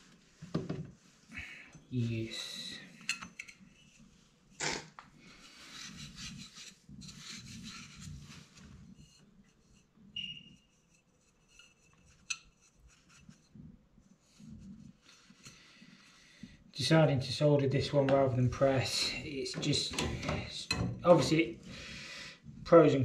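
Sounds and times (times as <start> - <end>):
scraping on copper pipe: 5.3 - 15.8.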